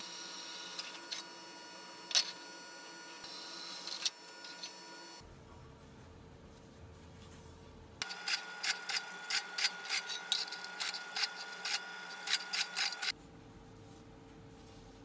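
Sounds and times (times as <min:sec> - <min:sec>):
drill bit scraping sheet metal: 0:08.0 - 0:13.1
drill press motor hum: 0:08.0 - 0:13.1.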